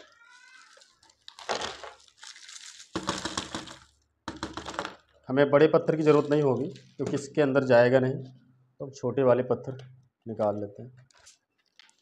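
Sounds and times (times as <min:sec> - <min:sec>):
lumps clattering onto a table: 0:03.0 - 0:05.0.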